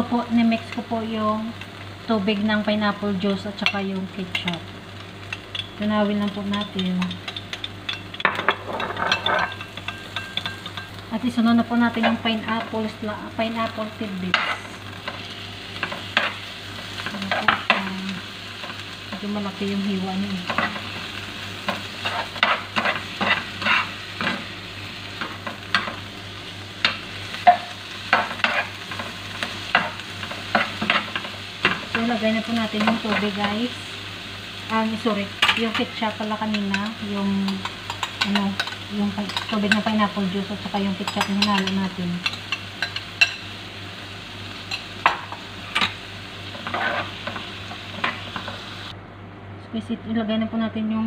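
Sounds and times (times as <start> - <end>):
food frying sizzle: 0.0 - 49.0
utensil clicking against pan: 5.3 - 10.9, 36.5 - 40.0
spoon scraping frying pan: 14.3 - 17.9, 20.4 - 24.5, 26.8 - 32.1, 35.4 - 43.5, 44.6 - 48.6.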